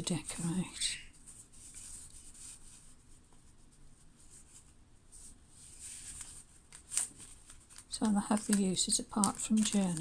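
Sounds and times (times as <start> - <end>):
paper pieces rustling: 5.8 - 10.0.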